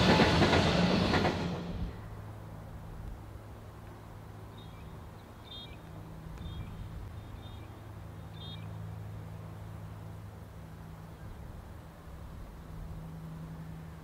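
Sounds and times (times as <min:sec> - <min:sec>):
low engine hum: 0:00.0 - 0:14.0
small bird chirping: 0:04.6 - 0:08.8.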